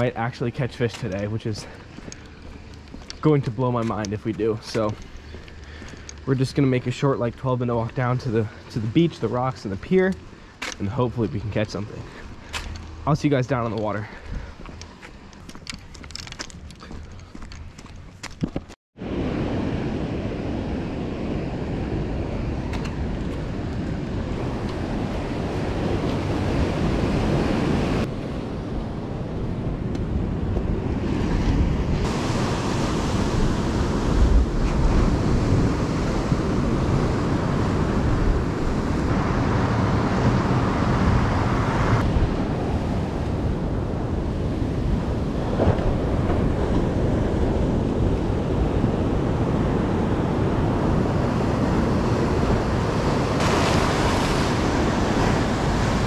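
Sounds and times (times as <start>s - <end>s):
wind buffeting microphone: 13.6s - 56.0s
surf breaking on rocky shore: 30.7s - 56.0s.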